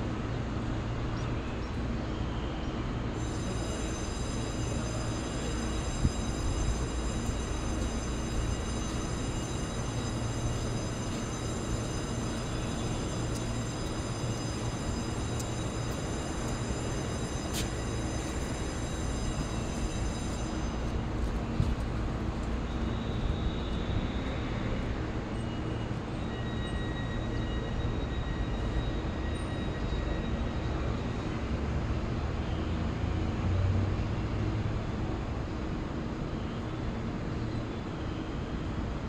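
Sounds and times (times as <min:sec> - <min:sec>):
train low hum and rumble: 0:00.0 - 0:39.0
faint high steady tones: 0:02.2 - 0:31.3.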